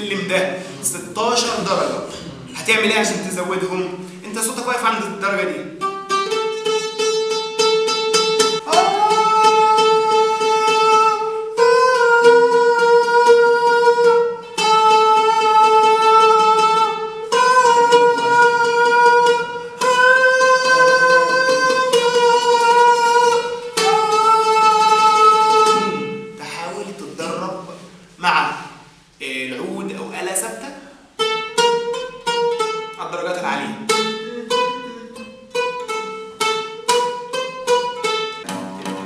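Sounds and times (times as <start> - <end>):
oud plucked: 0.0 - 39.0
man singing held vowel notes: 8.6 - 30.0, 33.0 - 35.7.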